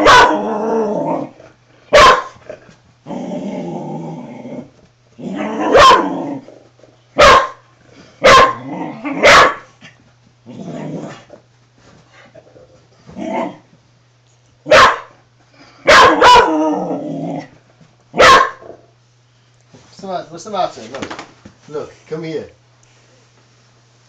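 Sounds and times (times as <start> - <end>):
dog barking: 0.0 - 0.4, 1.9 - 2.4, 5.6 - 6.2, 7.2 - 8.6, 9.2 - 9.7, 14.7 - 15.2, 15.8 - 16.6, 18.2 - 18.8
dog growling: 0.0 - 1.5, 2.5 - 6.7, 8.4 - 9.3, 10.4 - 11.4, 12.4 - 13.7, 16.1 - 17.6.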